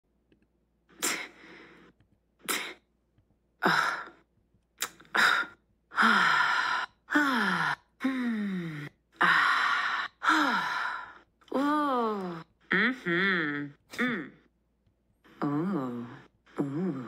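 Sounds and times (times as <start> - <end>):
breathy sighs and scoffs: 3.6 - 14.5, 15.2 - 17.0.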